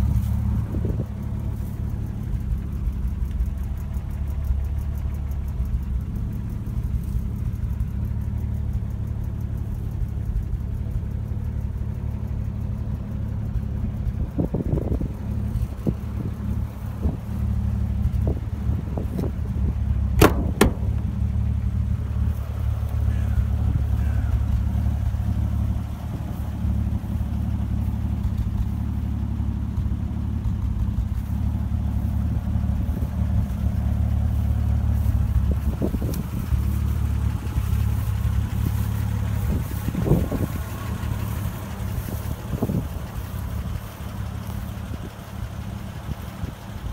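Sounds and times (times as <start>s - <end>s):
car engine idling: 0.0s - 46.9s
sharp click: 20.2s - 21.2s.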